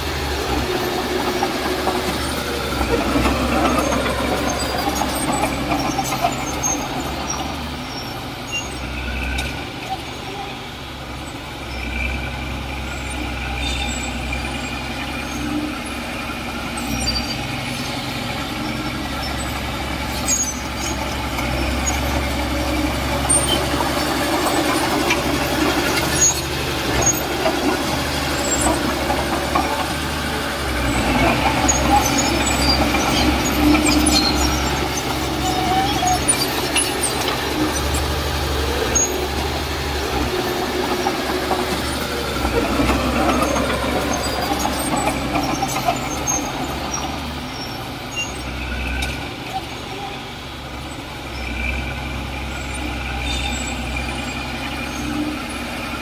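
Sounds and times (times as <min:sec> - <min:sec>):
diesel machinery engine drone: 0:00.0 - 0:56.0
metallic clanks and squeaks: 0:00.4 - 0:10.6, 0:12.9 - 0:50.3.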